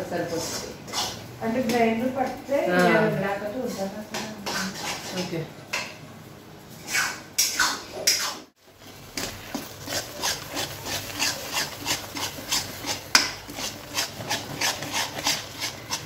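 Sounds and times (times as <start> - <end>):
metal ladle scraping a pan: 0.3 - 1.2, 3.7 - 5.3, 6.8 - 16.0.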